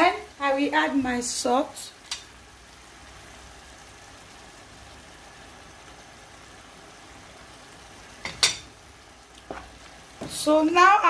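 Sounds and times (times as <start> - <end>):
pot hissing on stove: 0.0 - 11.0.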